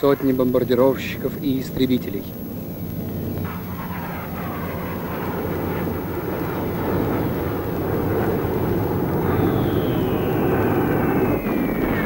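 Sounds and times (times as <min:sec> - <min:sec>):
bombers droning overhead: 0:00.0 - 0:12.0
falling bomb whistle: 0:03.4 - 0:12.0.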